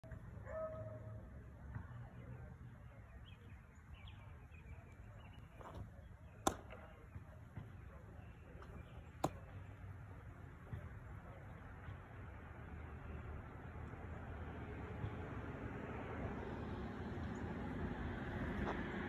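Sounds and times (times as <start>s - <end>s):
baseball smacking into glove: 5.6s - 7.7s, 8.6s - 9.7s.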